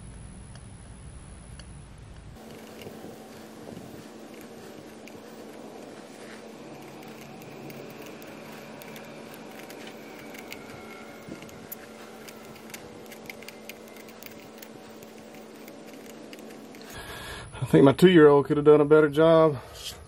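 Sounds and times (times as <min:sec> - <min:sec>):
steady low hum: 0:00.0 - 0:20.0
metal scribe scratching steel: 0:02.4 - 0:17.0.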